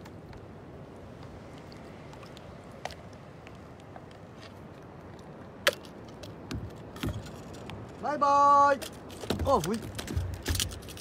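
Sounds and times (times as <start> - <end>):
water and wind hissing: 0.0 - 11.0.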